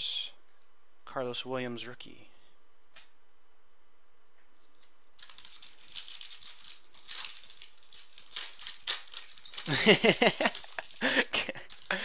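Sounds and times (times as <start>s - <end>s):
foil wrapper crinkling: 4.7s - 12.0s.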